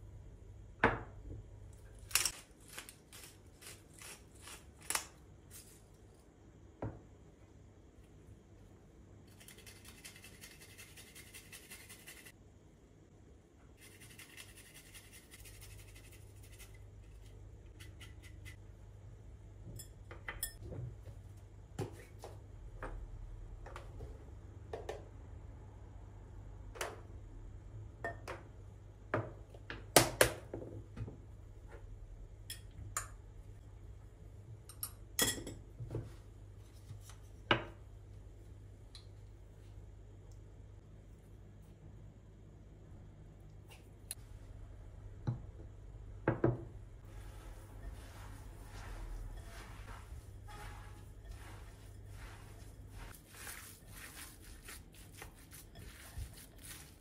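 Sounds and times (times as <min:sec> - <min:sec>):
seasonings sprinkled into bowl: 0:09.3 - 0:12.4, 0:13.8 - 0:18.6, 0:47.1 - 0:57.0.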